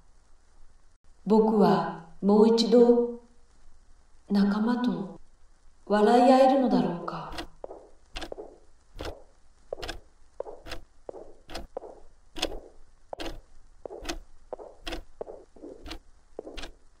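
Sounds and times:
footsteps tapping: 7.3 - 16.9
soft scuffing: 7.4 - 16.8.

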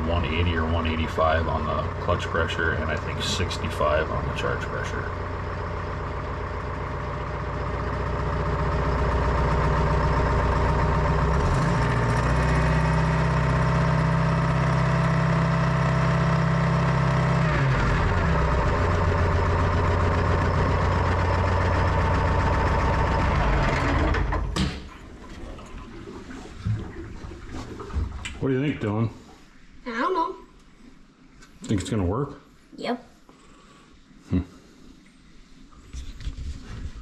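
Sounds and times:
wheel loader engine running: 0.0 - 28.9.

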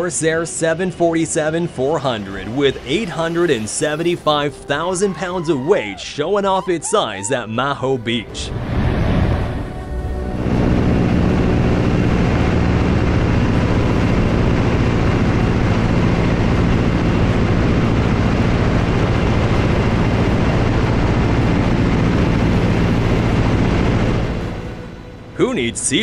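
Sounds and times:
biplane engine running: 0.0 - 26.0
air rushing over wing: 8.5 - 25.2.

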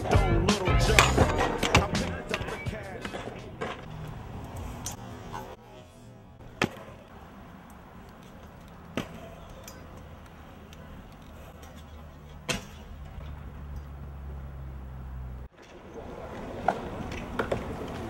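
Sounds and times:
scooter deck slapping concrete: 0.6 - 5.5, 6.4 - 7.1, 15.5 - 18.0.

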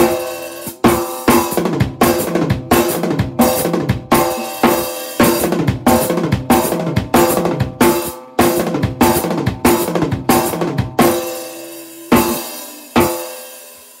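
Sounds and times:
cymbal crashes: 0.0 - 1.6, 6.6 - 14.0
drum kit played hard: 0.0 - 14.0.

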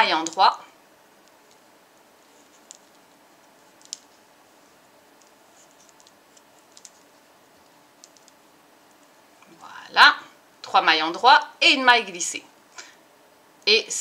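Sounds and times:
knitting needles clicking: 0.1 - 0.5, 2.4 - 4.2, 5.2 - 9.0.

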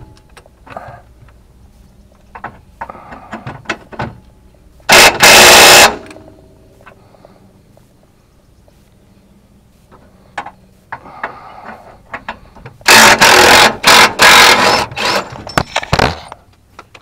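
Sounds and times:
impact wrench hammering: 4.9 - 6.2, 12.8 - 15.3
tool handling clicks and scraping: 9.9 - 17.0.

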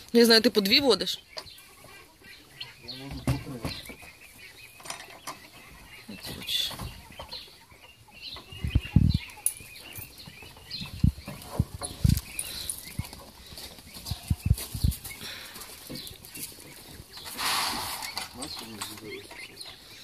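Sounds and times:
goat hooves thumping: 8.4 - 19.3
person's footsteps: 8.8 - 18.4.

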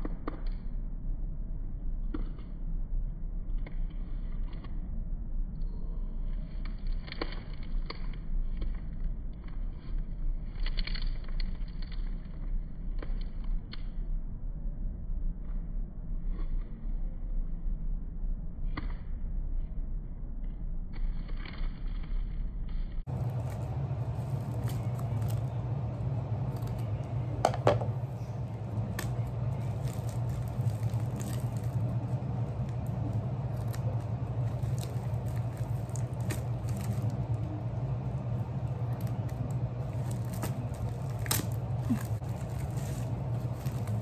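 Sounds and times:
low hum: 0.0 - 44.0
plastic crinkling: 23.1 - 44.0
scissors snipping plastic: 28.5 - 37.5, 38.9 - 44.0.

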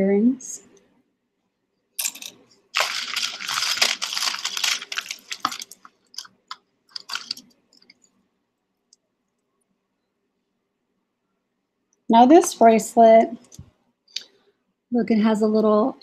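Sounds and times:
jewelry jangling and clicking: 2.0 - 8.0.

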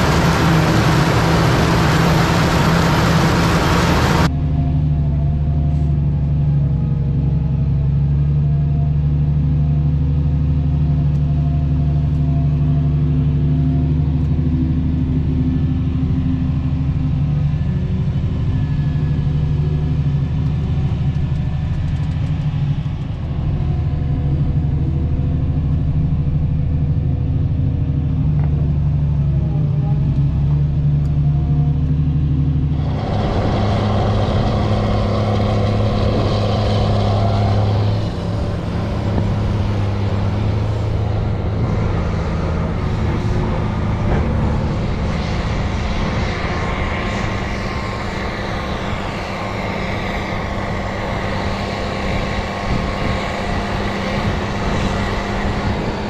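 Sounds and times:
loud rough tracked tractor engine: 0.0 - 56.0
tractor engine from inside cab: 0.0 - 56.0.

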